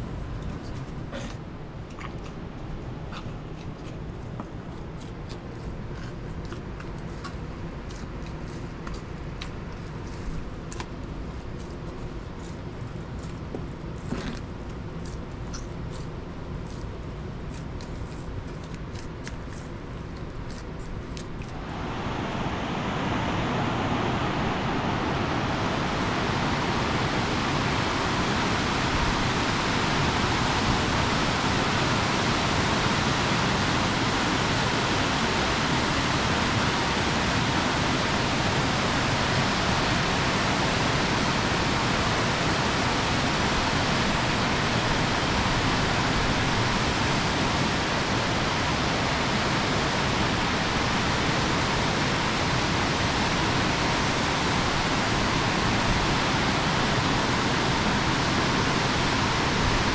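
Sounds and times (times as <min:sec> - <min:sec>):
river rushing over rocks: 0:21.6 - 0:59.9.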